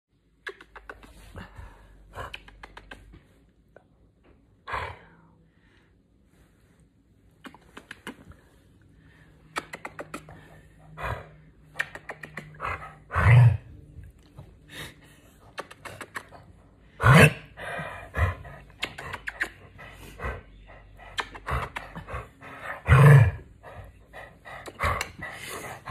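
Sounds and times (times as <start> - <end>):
kiss smacks: 0.3 - 1.3, 2.3 - 3.2, 7.4 - 8.4, 9.5 - 10.4, 11.7 - 12.6, 15.4 - 16.5, 18.7 - 19.7, 21.0 - 22.0.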